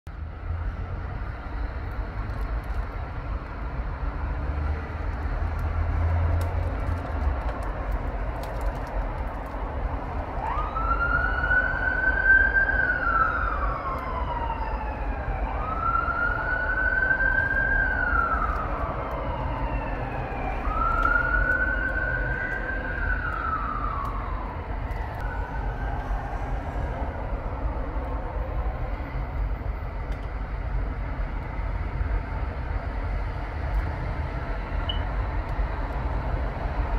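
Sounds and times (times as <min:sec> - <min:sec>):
road traffic rumbling: 0:00.1 - 0:36.9
ambulance siren wailing: 0:10.2 - 0:28.8.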